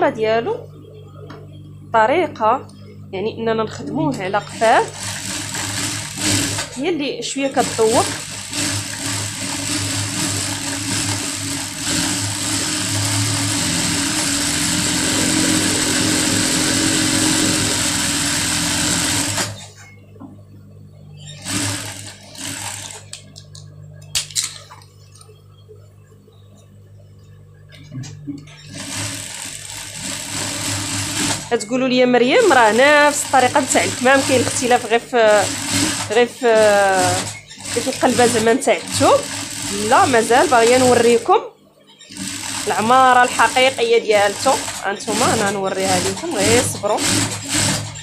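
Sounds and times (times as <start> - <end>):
sewing machine running: 4.1 - 19.8, 21.2 - 23.3, 28.6 - 41.3, 42.0 - 48.0.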